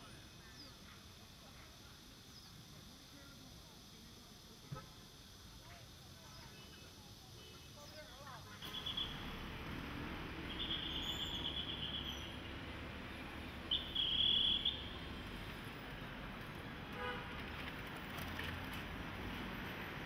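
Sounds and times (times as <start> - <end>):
outdoor background noise: 0.0 - 20.0
horn toot: 17.0 - 17.3.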